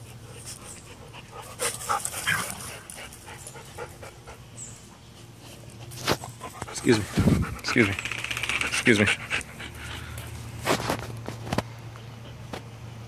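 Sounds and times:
dog panting: 0:00.0 - 0:10.6.

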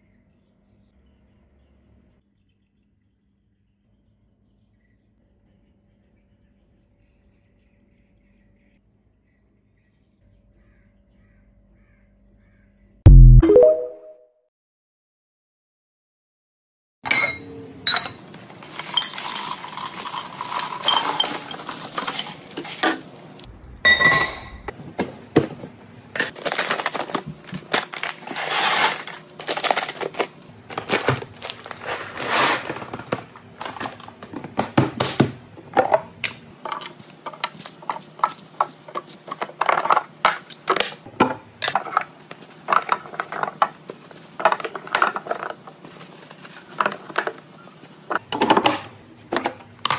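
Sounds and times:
plastic containers clattering: 0:18.2 - 0:23.4, 0:24.7 - 0:49.9
dry kibble pouring into plastic: 0:18.6 - 0:22.8, 0:27.7 - 0:33.1.

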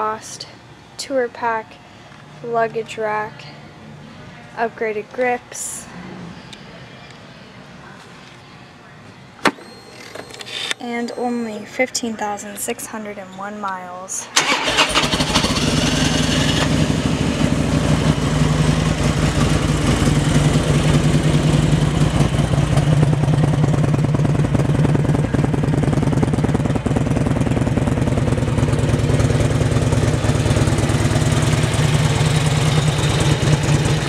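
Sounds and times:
motorcycle engine idling: 0:14.4 - 0:34.0.

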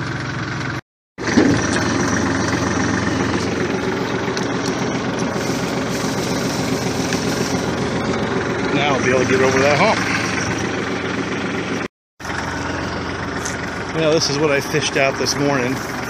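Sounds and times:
tractor diesel engine running: 0:00.0 - 0:16.0
log dragging on ground: 0:01.2 - 0:08.3.

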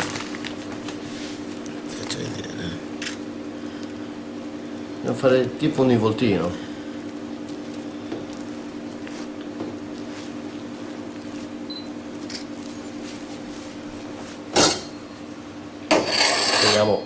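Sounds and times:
cling film rustling: 0:00.0 - 0:02.1
steady low hum: 0:00.0 - 0:17.0.

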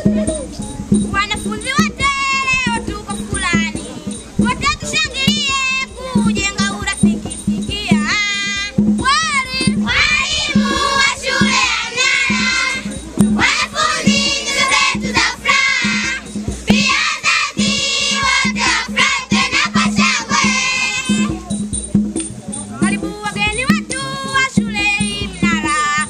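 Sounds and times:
steady beat: 0:00.0 - 0:26.0
girls singing together: 0:09.6 - 0:21.3.

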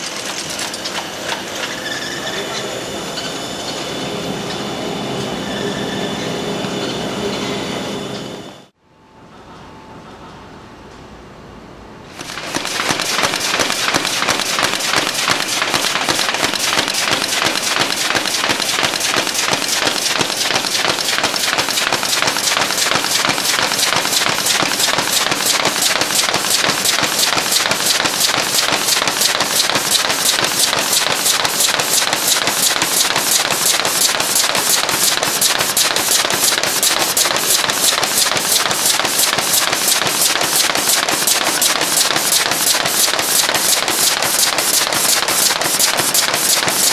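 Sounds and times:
carton machine clattering: 0:00.0 - 0:01.8, 0:12.2 - 0:46.9.

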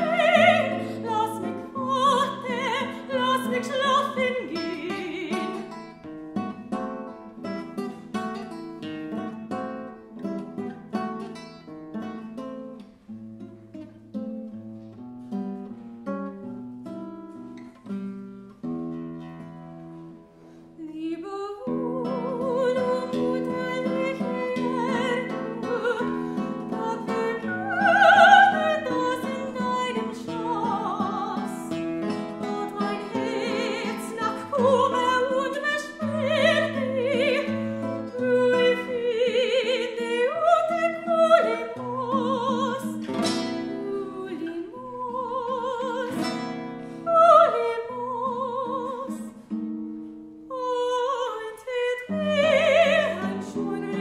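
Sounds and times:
woman singing with vibrato: 0:00.0 - 0:06.0, 0:20.8 - 0:49.6, 0:50.5 - 0:54.0
guitar picking: 0:00.0 - 0:20.8, 0:21.7 - 0:54.0.

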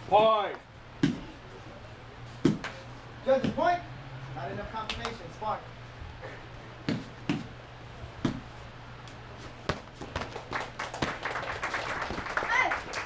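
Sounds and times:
gloves hitting sparring gear: 0:01.0 - 0:01.3, 0:06.9 - 0:07.6, 0:08.2 - 0:08.6.

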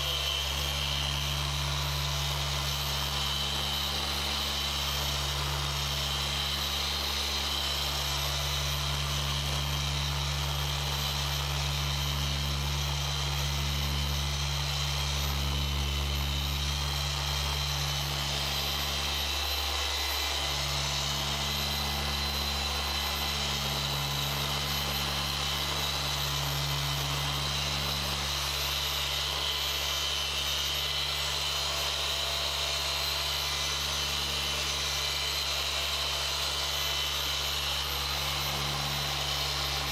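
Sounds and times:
polisher motor humming and whining: 0:00.0 - 0:39.9.

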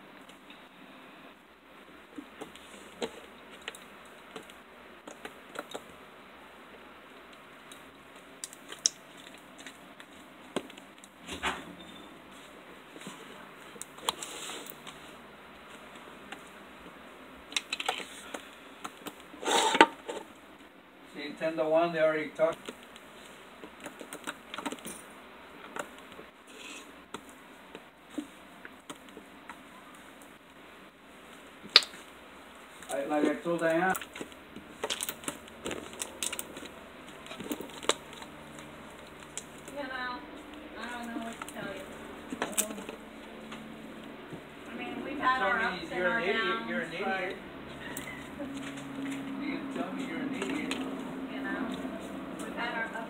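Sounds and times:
slime clicking and popping: 0:08.4 - 0:09.0, 0:31.7 - 0:32.0.

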